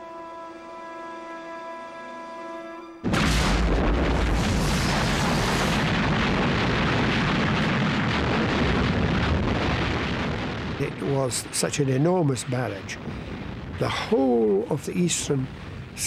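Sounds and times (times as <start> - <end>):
sustained music chord: 0.0 - 3.1
artillery barrage booms: 3.0 - 16.0.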